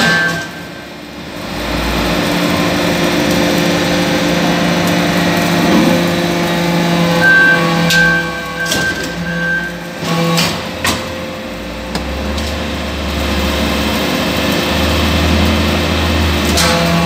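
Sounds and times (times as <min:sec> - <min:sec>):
high whine: 0:00.0 - 0:10.3
hydraulic pump humming: 0:00.0 - 0:17.0.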